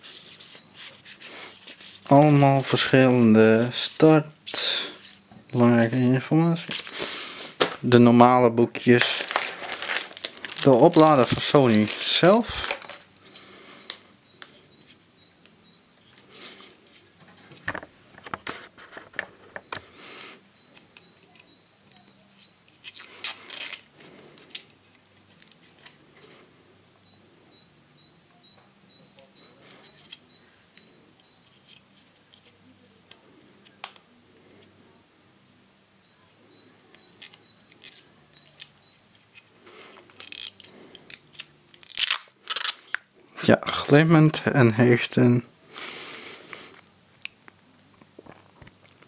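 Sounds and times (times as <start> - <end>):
plastic film crackling: 5.6 - 8.0, 8.7 - 13.2, 21.9 - 26.0, 36.9 - 38.8, 39.9 - 43.1.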